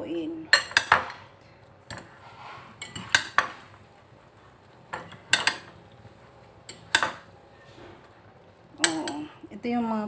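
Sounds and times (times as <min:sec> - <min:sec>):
fork clinking against ceramic bowl: 0:04.9 - 0:05.7.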